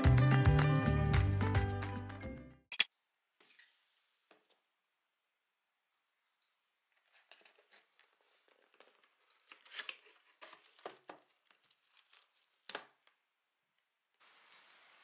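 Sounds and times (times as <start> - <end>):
cardboard box crinkling: 7.1 - 12.7.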